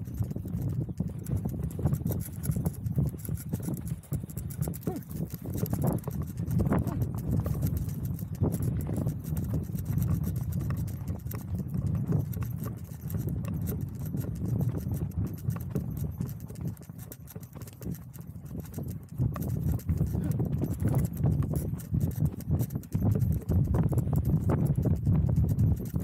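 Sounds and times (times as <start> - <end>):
horse hoofbeats on dirt: 0.0 - 26.0.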